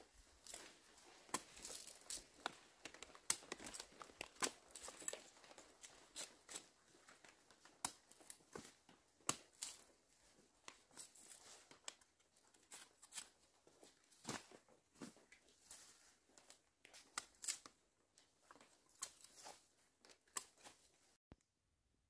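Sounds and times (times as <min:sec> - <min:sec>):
rustling and tearing of dry leaves: 0:00.4 - 0:07.2.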